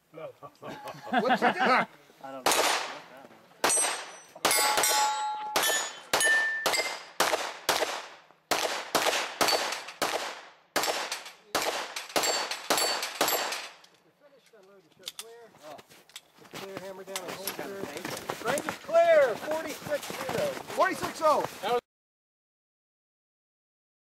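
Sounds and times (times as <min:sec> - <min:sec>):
carbine gunshots: 0:02.4 - 0:13.8
steel targets ringing: 0:03.6 - 0:07.1.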